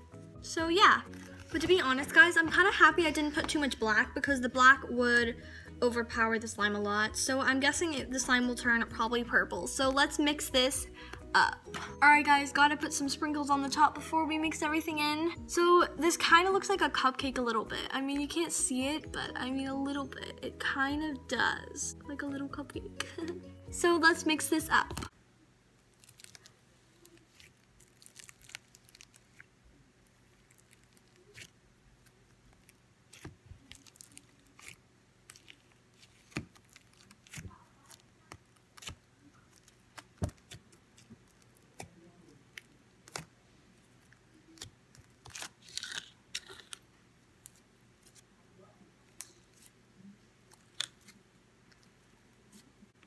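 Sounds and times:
slime kneaded by hand: 0:26.0 - 0:43.3.

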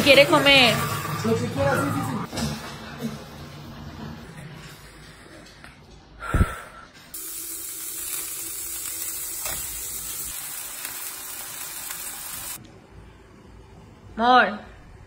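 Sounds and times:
chicken sizzling in frying pan: 0:07.2 - 0:12.6.

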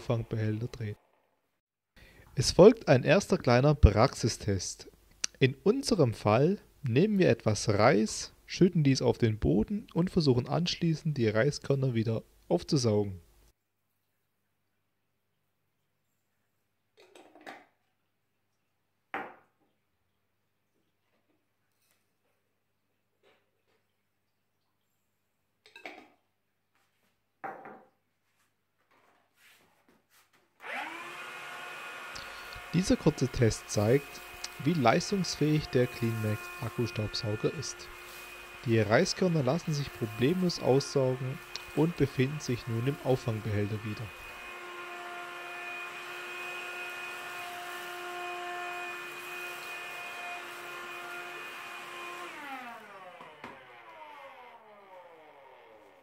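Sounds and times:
vacuum cleaner motor whine: 0:30.6 - 0:56.0.

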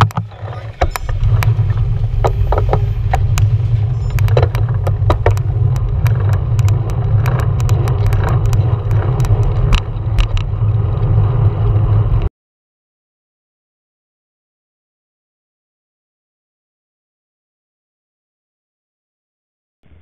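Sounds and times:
sharp clicks and rattles: 0:00.0 - 0:12.3
wind and road rumble: 0:00.0 - 0:12.3.

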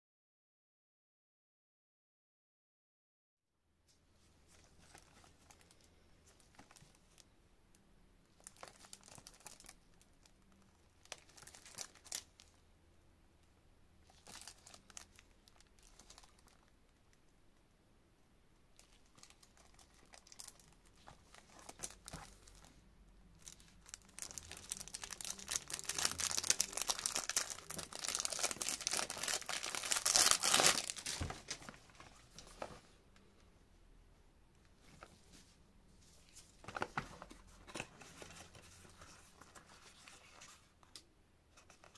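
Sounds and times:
plastic film crinkling: 0:08.4 - 0:10.4, 0:11.0 - 0:12.5, 0:14.1 - 0:16.7, 0:18.8 - 0:22.8, 0:23.4 - 0:32.7.

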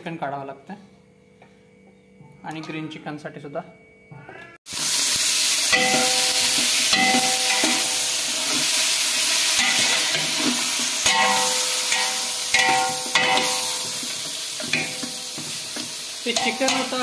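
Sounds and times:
chicken sizzling in oil: 0:04.7 - 0:17.0.

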